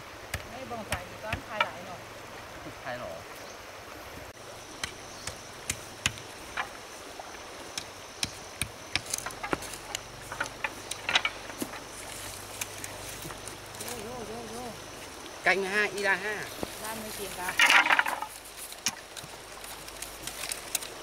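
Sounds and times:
stream water rushing: 0:00.0 - 0:21.0
sharp clicks and light knocks: 0:07.8 - 0:11.9.

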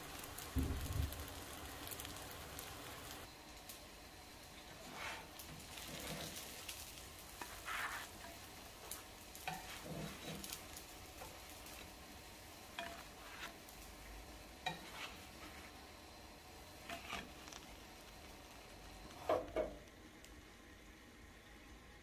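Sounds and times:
oil sizzling in frying pan: 0:00.0 - 0:22.0
scrapes and light knocks: 0:07.4 - 0:10.6, 0:12.8 - 0:13.6, 0:14.7 - 0:15.8.

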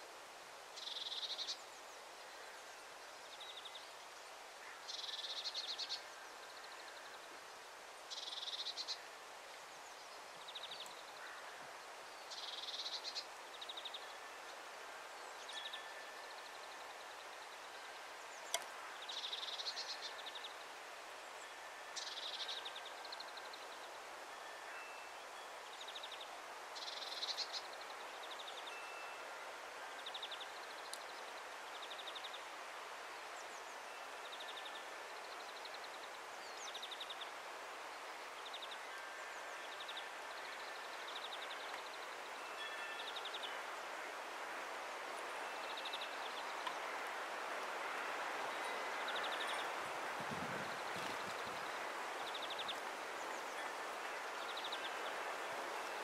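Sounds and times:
steady outdoor hiss: 0:00.0 - 0:56.0
songbirds trilling: 0:39.6 - 0:56.0.

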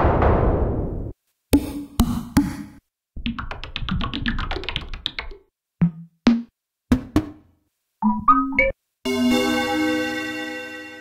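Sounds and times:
percussive synth hits: 0:00.0 - 0:02.6, 0:05.8 - 0:07.4.

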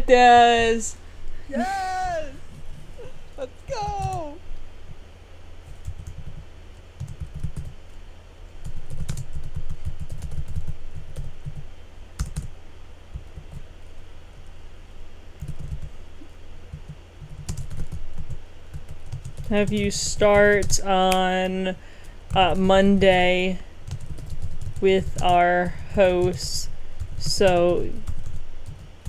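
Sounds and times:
steady low hum: 0:00.0 - 0:29.0
computer keyboard typing: 0:05.7 - 0:06.4, 0:07.0 - 0:07.7, 0:08.6 - 0:11.6, 0:12.2 - 0:12.5, 0:15.4 - 0:15.9, 0:16.7 - 0:21.3, 0:23.8 - 0:25.4.

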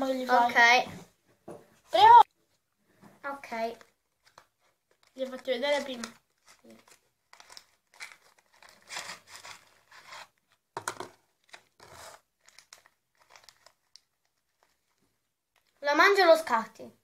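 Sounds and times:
plastic bag crinkling: 0:03.5 - 0:10.6, 0:11.2 - 0:15.8.

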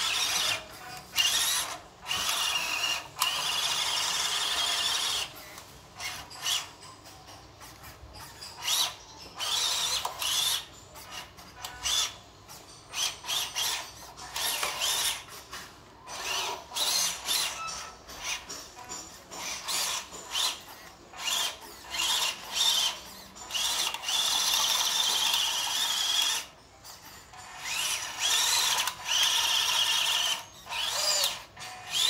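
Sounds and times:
electric motor and gearbox whining: 0:00.0 - 0:06.8, 0:08.2 - 0:12.2, 0:12.9 - 0:26.5, 0:27.3 - 0:32.0.

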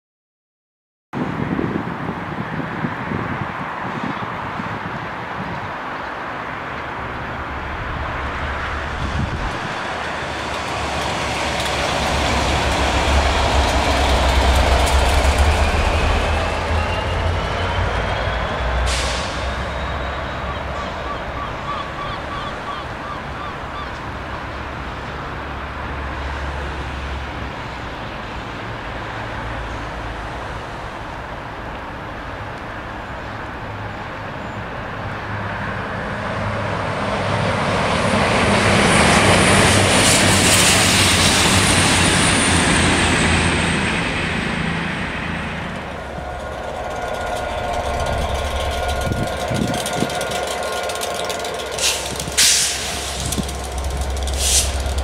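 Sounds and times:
diesel locomotive engine drone: 0:01.2 - 0:55.0
passing diesel train whine: 0:02.2 - 0:55.0.

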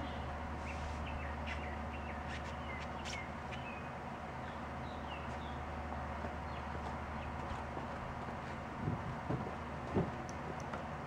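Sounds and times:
small birds chirping: 0:00.0 - 0:05.6.

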